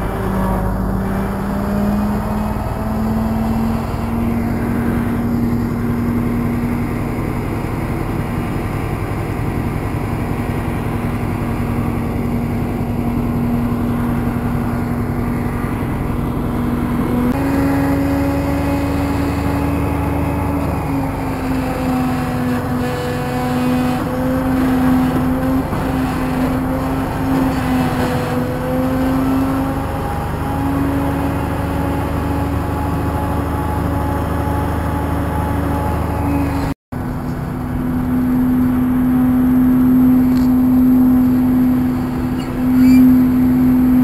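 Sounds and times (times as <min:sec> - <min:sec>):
truck diesel engine running: 0:00.0 - 0:44.0.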